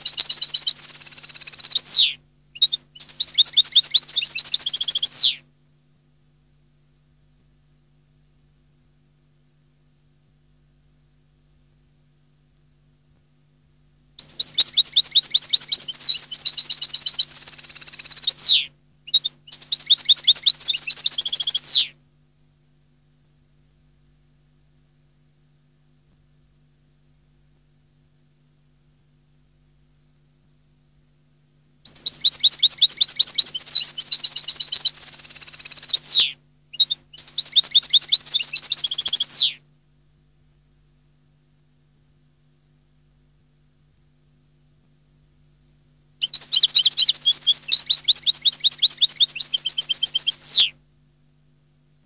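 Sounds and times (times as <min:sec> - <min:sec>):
goldfinch singing: 0:00.0 - 0:05.4, 0:14.2 - 0:21.9, 0:31.9 - 0:39.6, 0:46.2 - 0:50.7
faint steady hum: 0:00.0 - 0:52.0.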